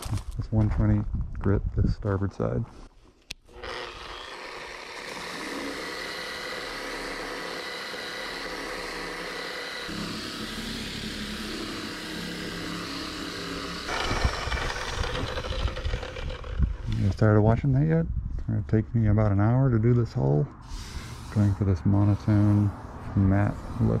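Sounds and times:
orbital sander running: 3.5s - 17.0s.

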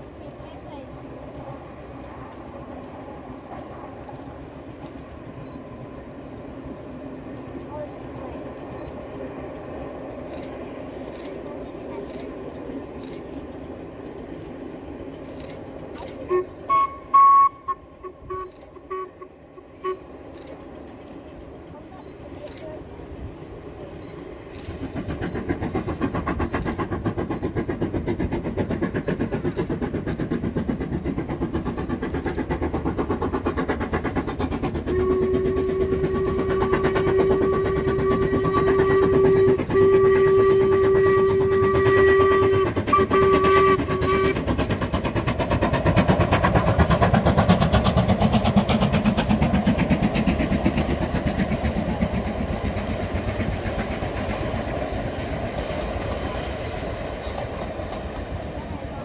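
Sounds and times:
train running noise: 0.0s - 59.0s
steam locomotive whistle: 16.3s - 20.1s, 34.9s - 44.5s.

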